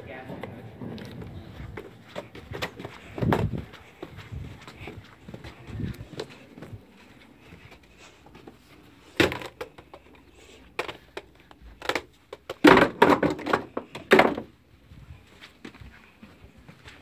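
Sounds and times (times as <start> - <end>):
roller skates knocking together: 10.7 - 14.5.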